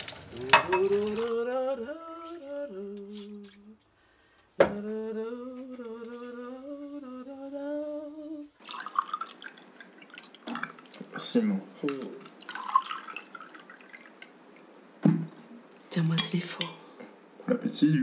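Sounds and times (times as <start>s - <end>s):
person humming a tune: 0.4s - 3.8s, 4.6s - 8.6s.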